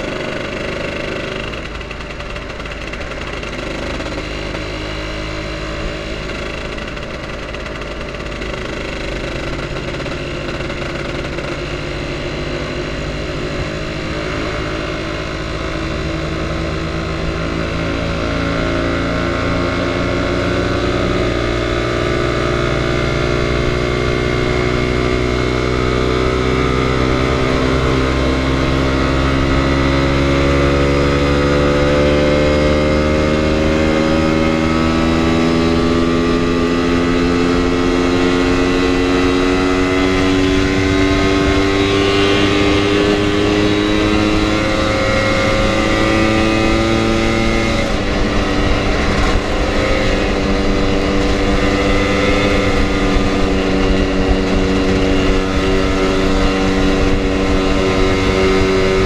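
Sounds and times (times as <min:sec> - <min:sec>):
scooter engine pulling: 0:00.0 - 0:59.0
wind rumble on microphone: 0:33.3 - 0:59.0.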